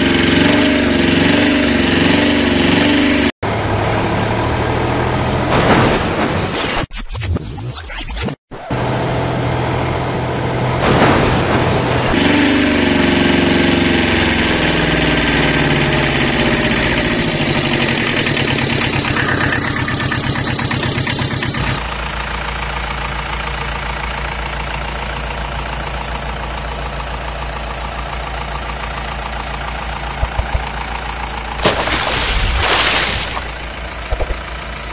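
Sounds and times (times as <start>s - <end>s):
vehicle engine idling: 8.8s - 32.3s, 33.1s - 34.9s.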